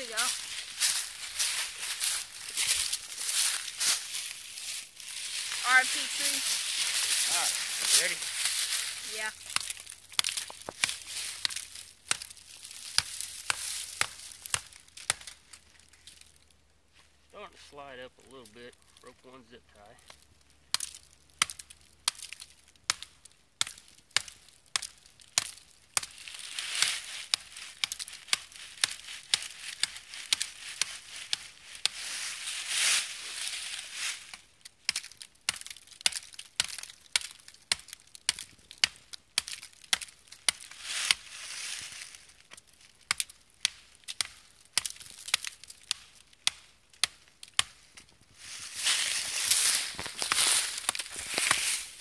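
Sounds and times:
blade chopping wood: 9.4s - 15.4s, 20.7s - 26.2s, 26.8s - 32.0s, 34.8s - 41.2s, 43.1s - 47.8s, 49.4s - 51.9s.

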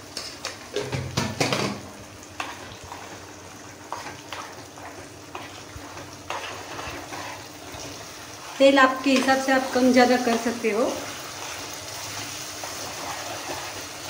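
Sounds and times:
gravy bubbling and sizzling: 0.0s - 14.0s
spoon scraping metal pan: 5.3s - 14.0s.

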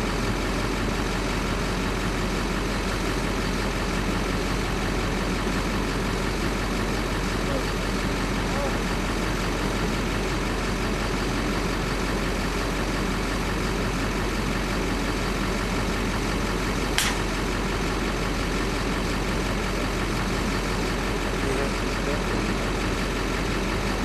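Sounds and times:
vehicle engine idling: 0.0s - 24.0s
sharp click: 17.0s - 17.3s.

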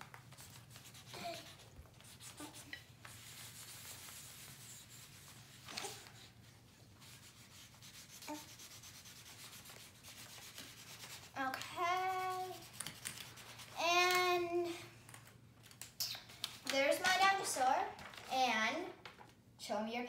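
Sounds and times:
markers scribbling on paper: 0.3s - 13.8s.

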